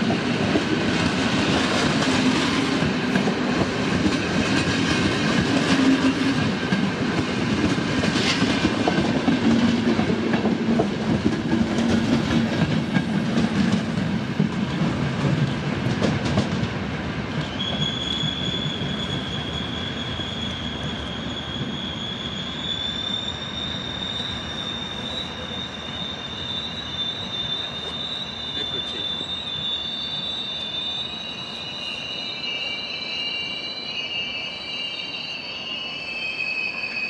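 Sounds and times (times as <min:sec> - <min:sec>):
train rumbling: 0:00.0 - 0:37.0
high-pitched brake squeal: 0:17.3 - 0:37.0.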